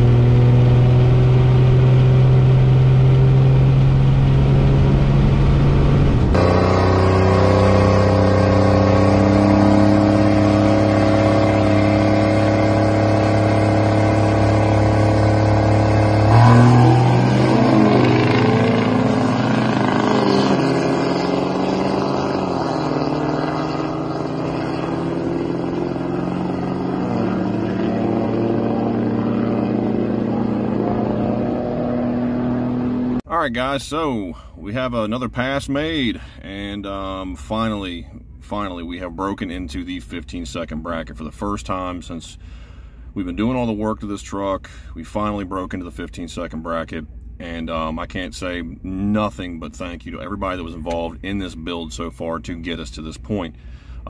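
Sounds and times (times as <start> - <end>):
truck accelerating at full throttle: 0.0 - 33.2
diesel truck engine: 0.0 - 54.0.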